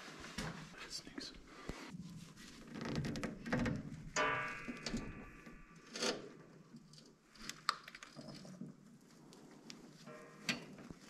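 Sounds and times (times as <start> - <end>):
metal knocks: 3.6 - 5.8
metallic ringing note: 4.2 - 5.9, 10.1 - 11.0
sharp metallic clank: 4.2 - 6.2.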